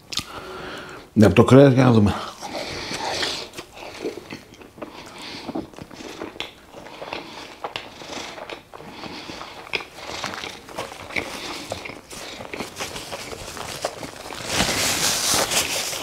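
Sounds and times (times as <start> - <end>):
chewing food: 2.4 - 14.9
wet mouth clicks and smacks: 4.3 - 8.8, 9.4 - 12.6.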